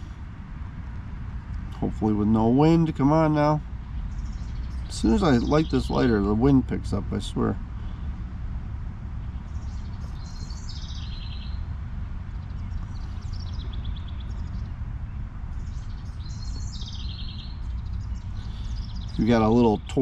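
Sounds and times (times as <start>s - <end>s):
songbird trilling: 2.7s - 7.6s, 9.4s - 11.6s, 12.4s - 20.0s.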